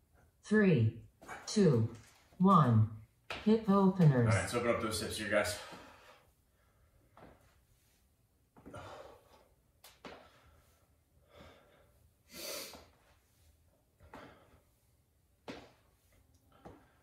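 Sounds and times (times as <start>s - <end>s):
man breathing: 5.5s - 15.0s, 16.3s - 17.0s.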